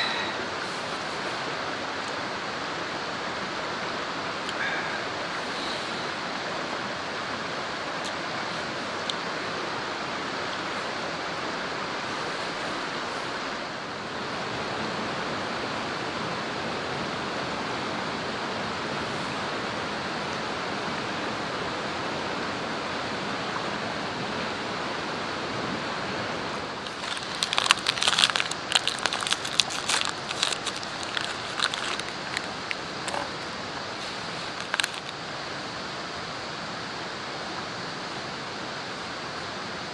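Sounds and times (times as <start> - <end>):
steady outdoor rushing noise: 0.0 - 39.9
food packet crinkling: 26.8 - 33.4, 34.0 - 35.2.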